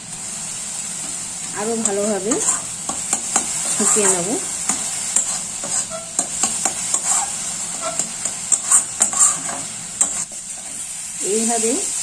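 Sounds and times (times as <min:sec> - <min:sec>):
food sizzling: 0:00.0 - 0:12.0
metal spatula scraping pan: 0:01.7 - 0:10.9.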